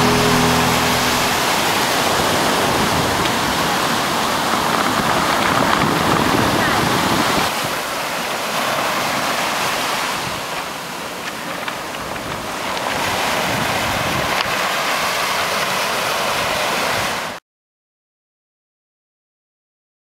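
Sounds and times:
wind buffeting microphone: 1.4s - 7.5s
waves washing over pebbles: 1.6s - 17.4s.

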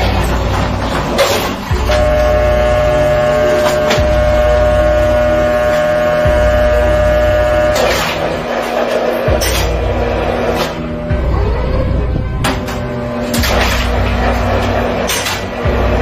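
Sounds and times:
deep bass notes: 0.0s - 8.5s, 9.3s - 16.0s
long held synth tone: 1.7s - 8.4s
sharp percussive hits: 5.6s - 11.3s, 12.2s - 16.0s.

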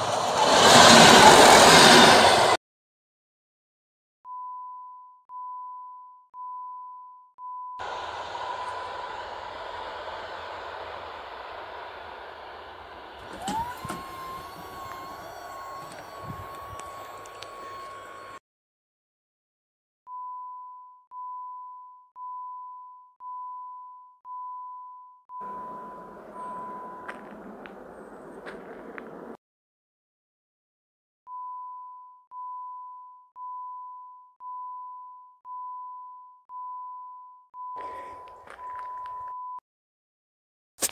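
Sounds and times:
passing train noise: 0.0s - 2.6s, 7.8s - 18.4s, 25.4s - 29.4s
rush of noise: 0.0s - 2.6s, 7.8s - 18.4s
barrier motor whine: 7.8s - 18.4s, 25.4s - 29.3s
level crossing bell ringing: 13.3s - 18.4s, 25.4s - 27.2s.

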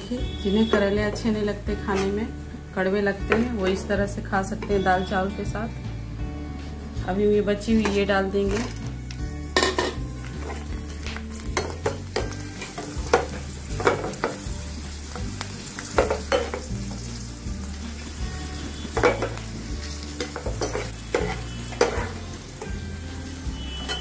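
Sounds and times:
spoon scraping and tapping pan: 7.7s - 8.8s, 9.5s - 14.5s, 15.9s - 16.7s, 18.9s - 22.8s
food deep-frying in oil: 9.2s - 24.0s.

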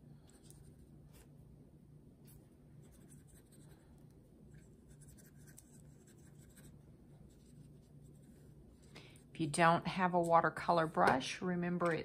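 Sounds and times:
low steady hum: 0.0s - 12.0s
brush dabbing on paper: 2.8s - 8.9s.

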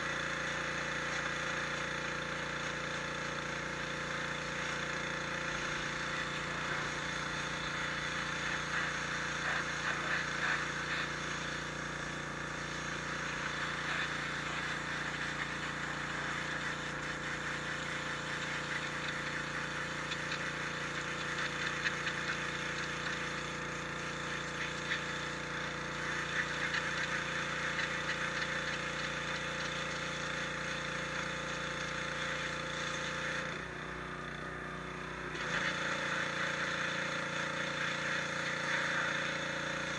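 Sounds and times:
pump motor humming: 0.0s - 39.9s
water jet hissing against stone: 0.1s - 31.2s.

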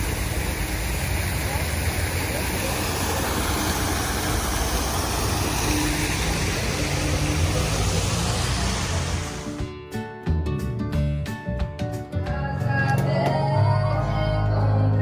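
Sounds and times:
fountain water splashing: 0.0s - 9.6s.

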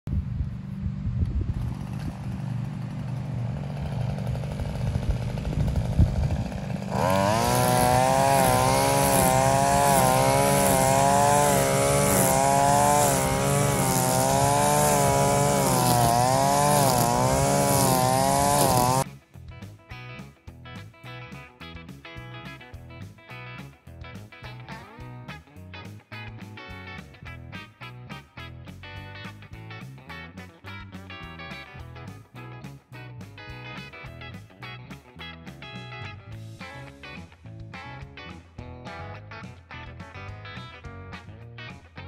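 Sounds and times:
string trimmer cutting grass: 0.4s - 19.1s.

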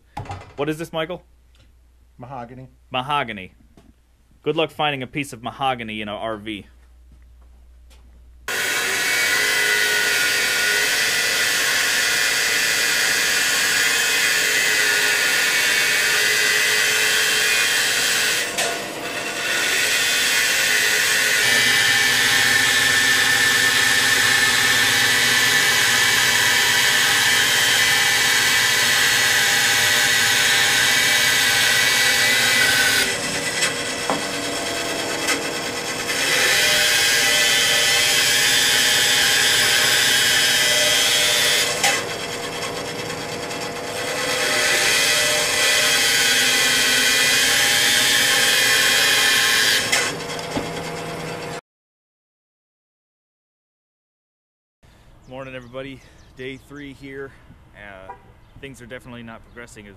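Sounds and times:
band saw hum: 8.5s - 51.6s
saw blade cutting wood: 8.5s - 51.6s.

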